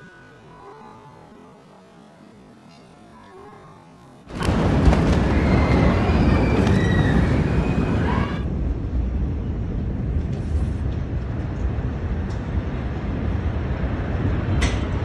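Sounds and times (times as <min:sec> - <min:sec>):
low steady rumble: 0:07.3 - 0:15.0.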